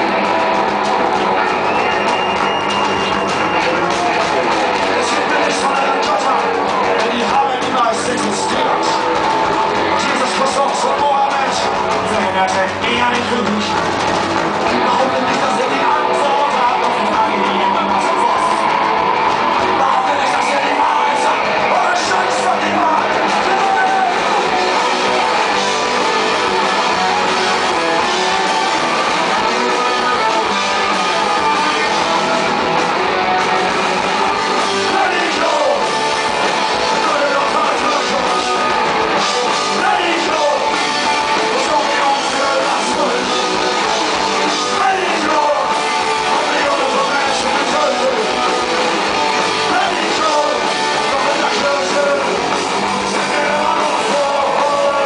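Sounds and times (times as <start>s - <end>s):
punk rock band playing: 0.0s - 55.0s
man shouting vocals: 19.8s - 24.3s, 34.9s - 35.8s, 36.9s - 38.5s, 39.8s - 40.7s, 44.6s - 48.4s, 49.7s - 52.4s, 53.2s - 55.0s.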